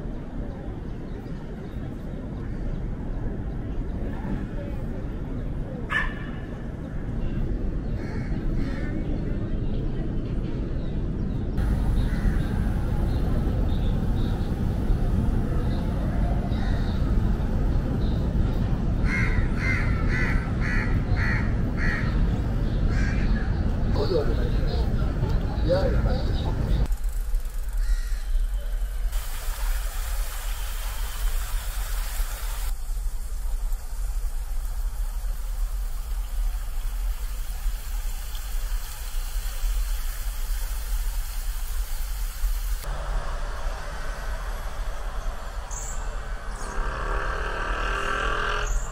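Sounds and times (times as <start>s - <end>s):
outdoor ambience: 0.0s - 48.9s
wind buffeting microphone: 6.6s - 26.9s
steady low rumble: 6.6s - 29.6s, 31.8s - 48.3s
crow cawing: 27.8s - 28.2s.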